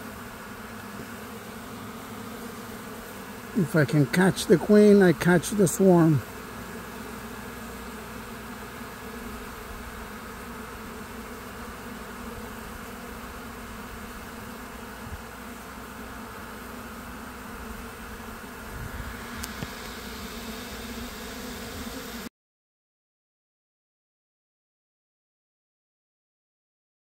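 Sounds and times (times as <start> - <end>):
honey bees buzzing: 0.0 - 22.3.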